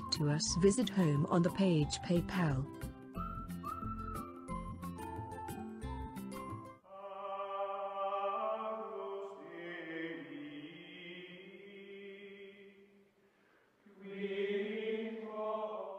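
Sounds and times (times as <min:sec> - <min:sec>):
chant-like held voices music: 0:06.8 - 0:13.0, 0:13.8 - 0:15.9.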